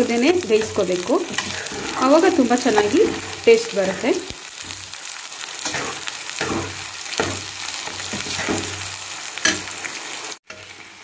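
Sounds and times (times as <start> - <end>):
masala sizzling in oil: 0.0 - 11.0
spatula scraping and stirring: 0.4 - 4.9, 5.6 - 9.7.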